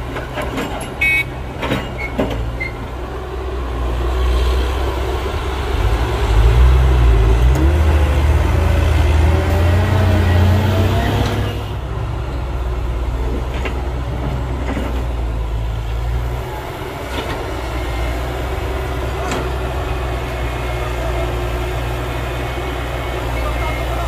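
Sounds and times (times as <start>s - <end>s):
machinery knocks and clanks: 0.0s - 2.8s, 13.2s - 16.0s, 19.1s - 19.8s
diesel engine rumble: 0.0s - 24.0s.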